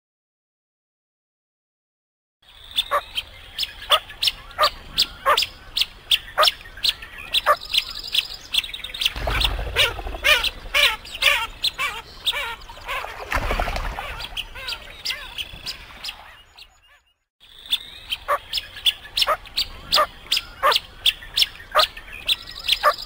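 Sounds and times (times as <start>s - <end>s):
ducks whistling calls: 9.0s - 23.0s
low rumble: 9.2s - 11.3s.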